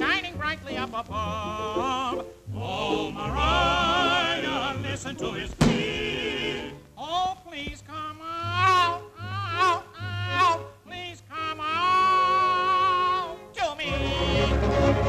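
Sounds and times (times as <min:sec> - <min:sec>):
cartoon voices singing with vibrato: 0:00.0 - 0:15.0.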